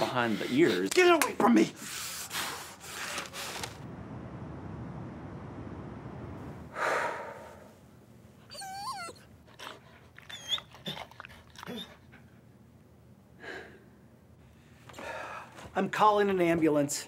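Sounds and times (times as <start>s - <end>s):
loud breathy huff: 6.7s - 7.8s
dog whining and whimpering: 8.4s - 12.0s.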